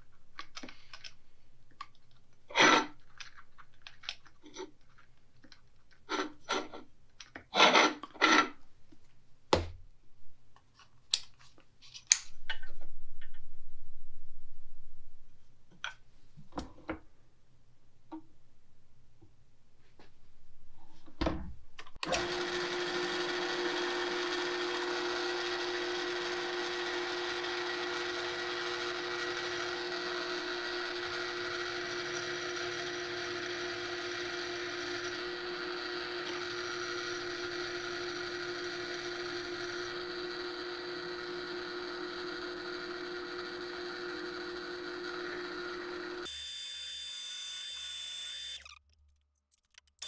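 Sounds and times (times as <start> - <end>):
drill press motor humming: 22.0 - 48.7.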